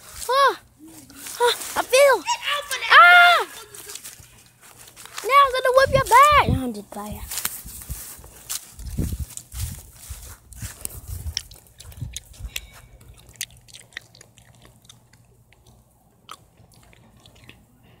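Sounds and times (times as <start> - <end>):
footsteps on dry leaves: 0.0 - 13.3.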